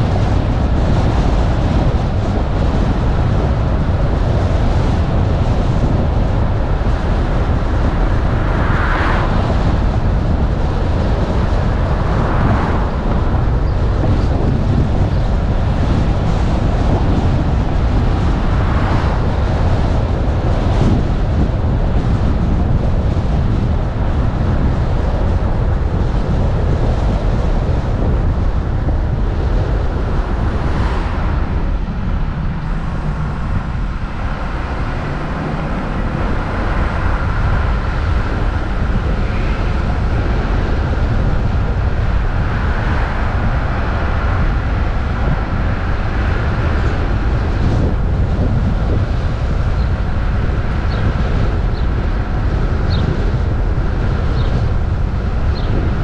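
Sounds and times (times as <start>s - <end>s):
wind rumble on microphone: 0.0s - 56.0s
car engine: 29.8s - 40.5s.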